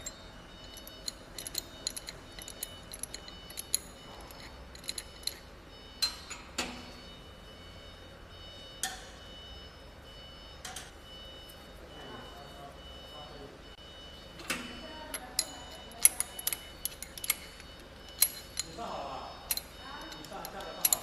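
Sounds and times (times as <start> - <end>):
metal wrench clinking: 0.0 - 6.4, 15.1 - 21.0.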